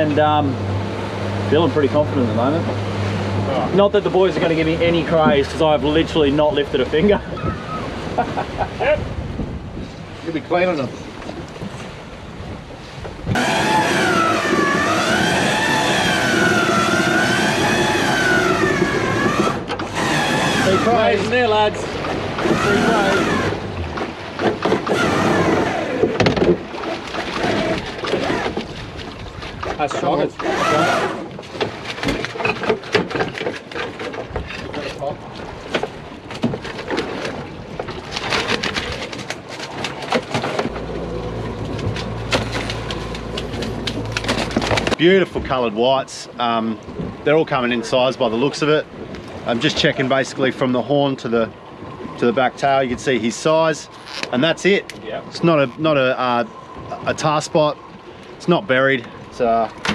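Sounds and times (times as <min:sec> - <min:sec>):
pot hauler mechanical whine: 0:13.3 - 0:21.7.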